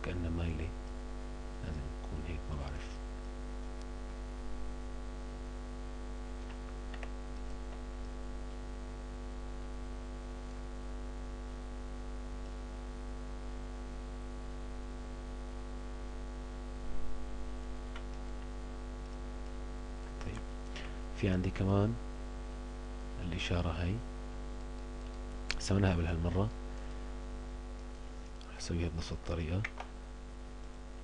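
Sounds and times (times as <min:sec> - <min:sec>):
electrical mains hum: 0:00.0 - 0:31.0
faint clicks: 0:06.4 - 0:08.2, 0:24.6 - 0:25.6.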